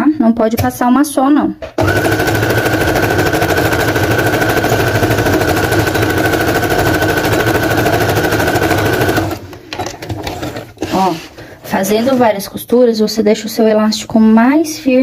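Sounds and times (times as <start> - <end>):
sewing machine stitching: 1.8 - 9.5.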